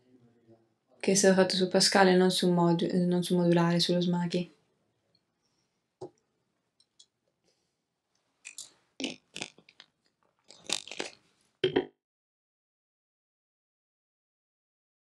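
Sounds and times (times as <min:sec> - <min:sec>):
lip clicks: 0:08.4 - 0:11.2.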